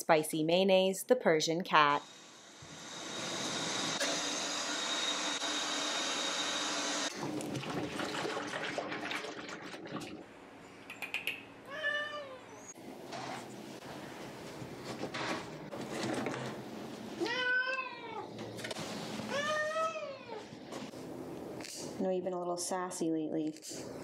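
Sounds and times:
water running into plastic tub: 0:07.1 - 0:10.3
cat meowing: 0:11.7 - 0:12.7, 0:17.2 - 0:18.3, 0:19.3 - 0:20.5.

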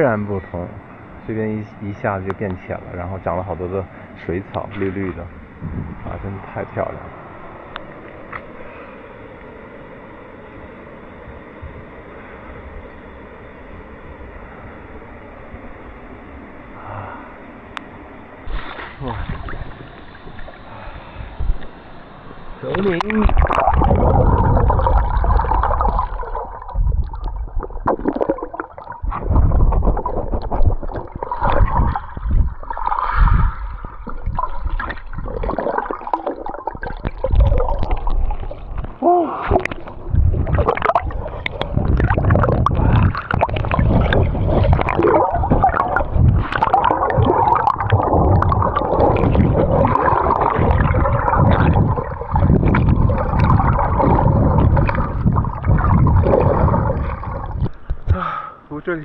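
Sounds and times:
water gurgling and sloshing: 0:00.0 - 0:58.1
water splashes: 0:22.6 - 0:58.1.

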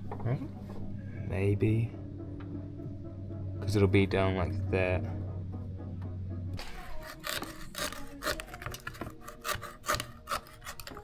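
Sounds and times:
hand saw rasping through hose: 0:06.6 - 0:11.0.

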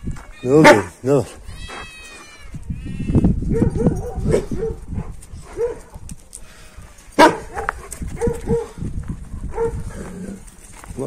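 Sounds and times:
dogs barking deeply: 0:03.5 - 0:06.0, 0:07.1 - 0:10.4.

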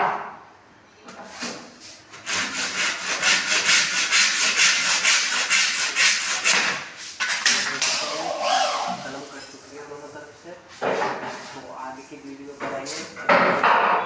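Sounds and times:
handsaw cutting plastic: 0:02.1 - 0:09.3.

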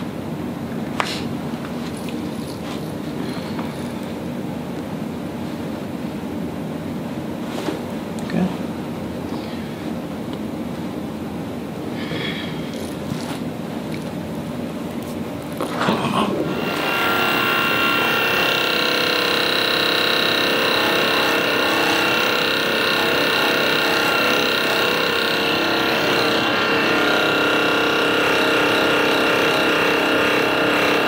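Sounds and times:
massage gun motor hum: 0:16.5 - 0:31.0.

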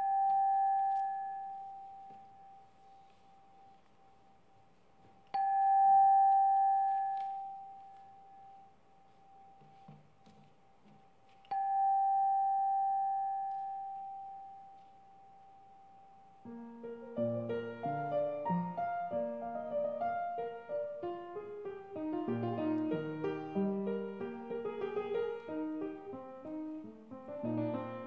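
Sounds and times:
bell ringing: 0:11.5 - 0:16.2.

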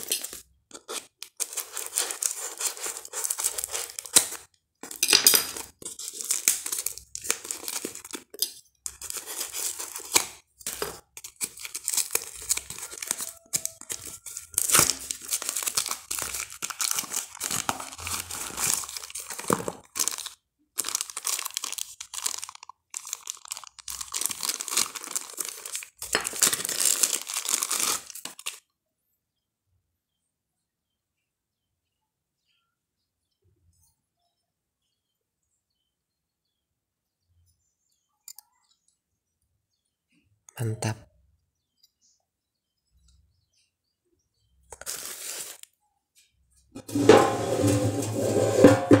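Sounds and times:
packing tape ripping: 0:00.0 - 0:08.2, 0:08.9 - 0:28.6, 0:44.7 - 0:45.7
cardboard crumpling: 0:00.0 - 0:28.6, 0:44.7 - 0:45.7.

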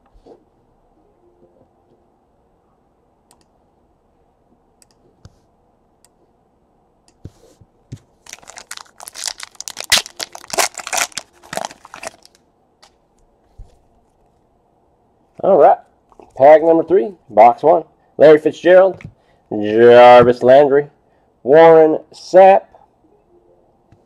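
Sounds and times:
foil wrapper crinkling and tearing: 0:08.2 - 0:12.4.

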